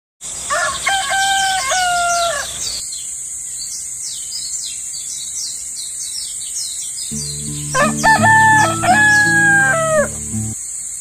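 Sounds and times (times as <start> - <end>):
rooster crowing: 0.5 - 2.5, 7.6 - 10.6
small birds chirping: 2.0 - 10.6.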